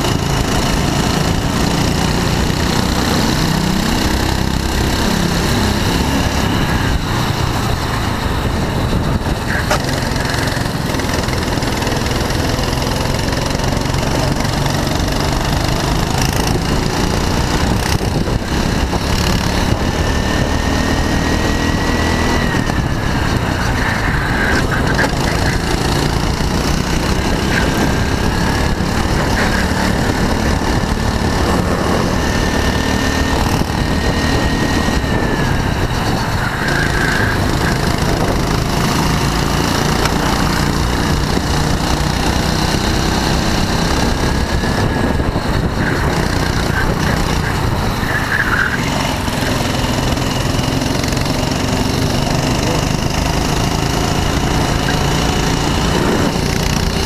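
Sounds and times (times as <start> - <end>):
go-kart engine revving: 0.0 - 57.0.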